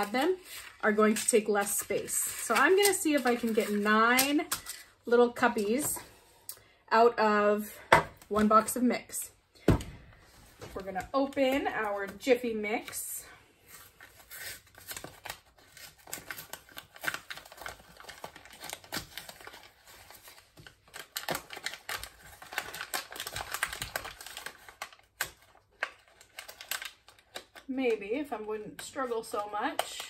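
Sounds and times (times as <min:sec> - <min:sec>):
package tearing and crinkling: 0:00.0 - 0:04.9, 0:13.6 - 0:27.7.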